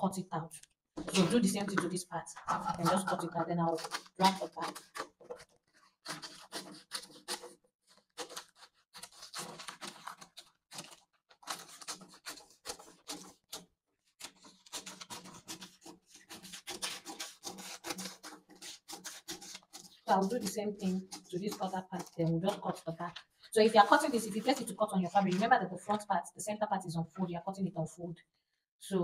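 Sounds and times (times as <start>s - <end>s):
scissors snipping paper: 2.7s - 25.5s.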